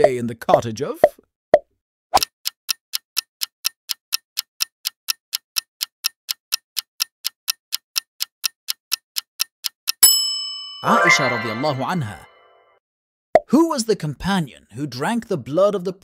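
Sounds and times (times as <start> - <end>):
clock ticking: 2.2 - 10.2.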